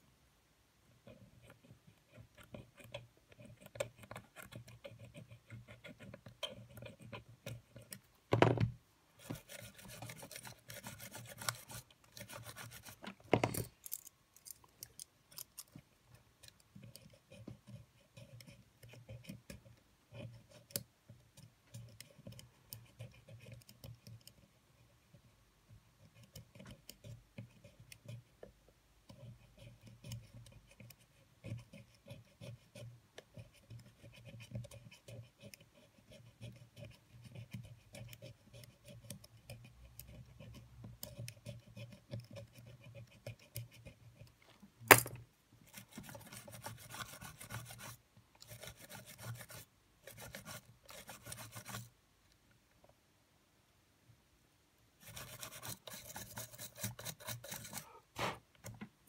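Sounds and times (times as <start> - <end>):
small tools clicking and tapping: 13.0 - 16.7.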